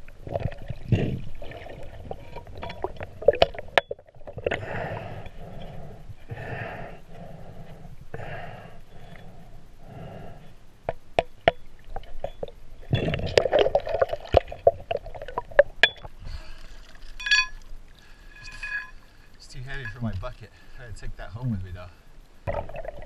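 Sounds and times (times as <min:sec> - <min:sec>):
underwater swishing pulses: 0:00.0 - 0:10.5.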